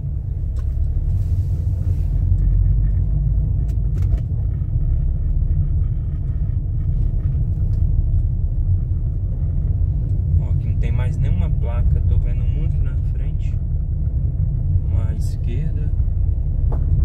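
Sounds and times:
car driving on paved street: 0.0s - 17.0s.

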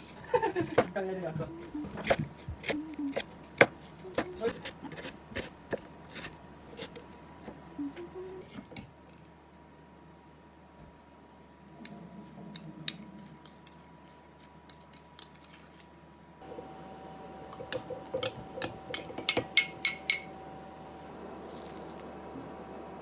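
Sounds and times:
metal spoon clinking glass bowl: 18.2s - 20.4s
glass-on-glass clinks: 19.0s - 20.4s.

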